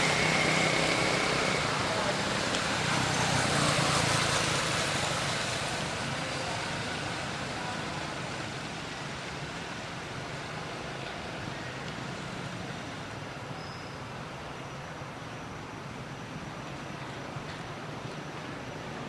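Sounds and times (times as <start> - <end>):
noisy wash: 0.0 - 13.4.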